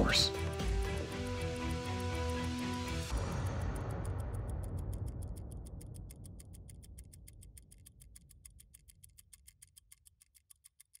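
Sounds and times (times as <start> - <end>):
trailer music: 0.0 - 6.4
fast even ticking: 0.4 - 11.0.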